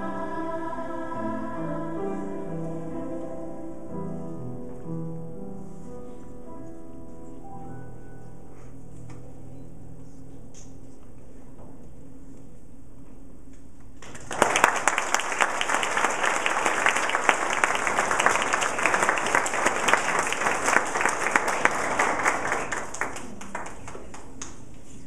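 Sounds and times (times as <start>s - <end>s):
audience clapping: 14.0s - 24.7s.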